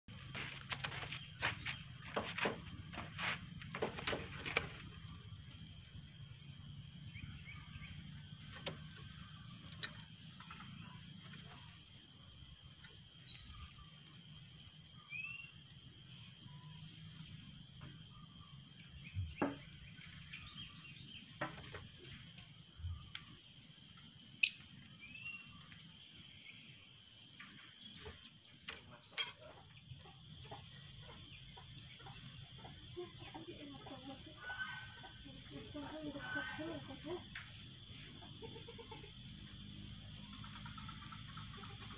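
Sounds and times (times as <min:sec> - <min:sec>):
faint bird chirps: 0:05.0 - 0:21.4.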